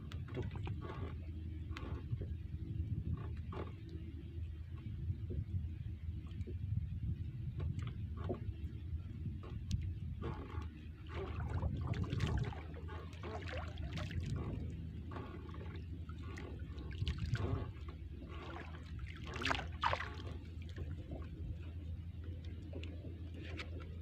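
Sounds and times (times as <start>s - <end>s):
steady low hum: 0.0s - 24.0s
small splashes and rustles: 9.4s - 24.0s.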